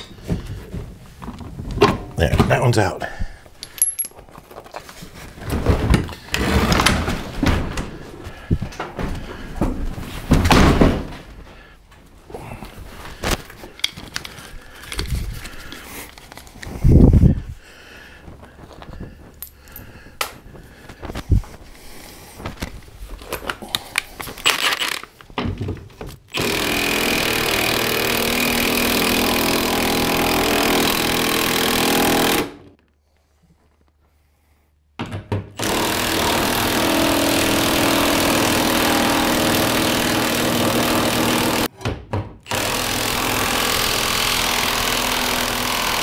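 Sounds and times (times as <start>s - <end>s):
clicks and knocks of parts: 3.6s - 4.8s, 13.2s - 16.7s, 22.5s - 26.5s
power tool on sheet metal: 26.3s - 32.6s, 35.6s - 41.7s, 42.5s - 46.0s.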